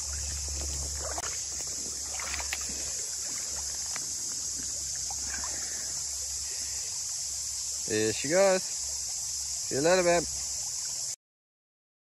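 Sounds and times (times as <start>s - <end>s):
steady low rumble: 0.0s - 6.5s
fish splashing in water: 0.0s - 11.1s.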